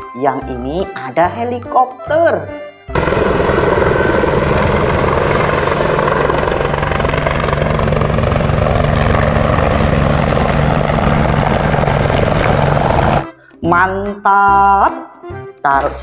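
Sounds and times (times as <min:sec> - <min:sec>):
helicopter rotor and engine: 0:02.9 - 0:13.4.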